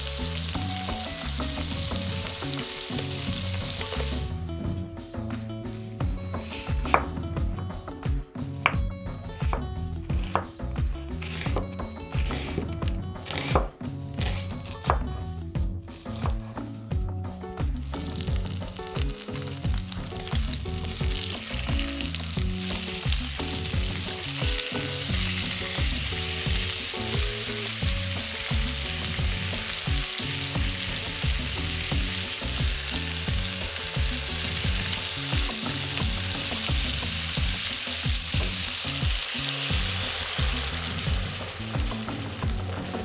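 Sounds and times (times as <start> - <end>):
steaks sizzling in a frying pan: 0.0 - 4.3, 18.0 - 42.7.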